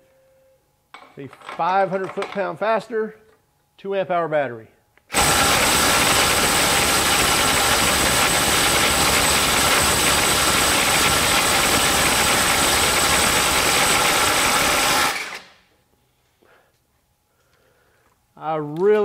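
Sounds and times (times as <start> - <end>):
impact driver hammering: 5.1 - 15.4.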